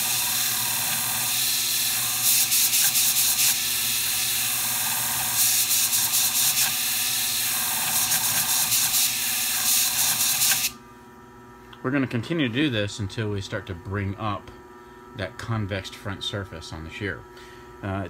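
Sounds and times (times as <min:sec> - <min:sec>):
sharpening machine humming: 0:00.0 - 0:10.9.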